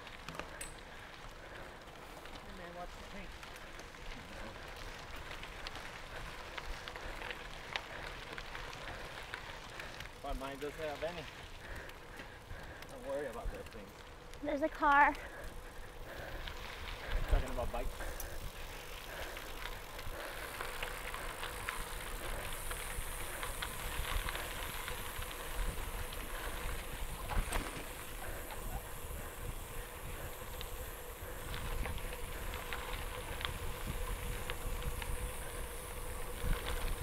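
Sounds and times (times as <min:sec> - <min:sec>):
bicycle tyres crunching on gravel: 0:00.0 - 0:37.0
wind rumbling on microphone: 0:16.1 - 0:37.0.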